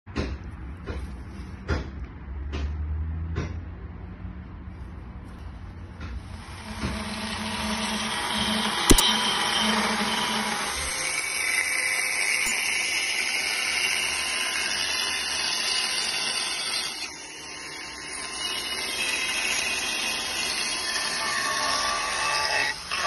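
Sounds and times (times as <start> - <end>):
chainsaw cutting wood: 6.3 - 23.0.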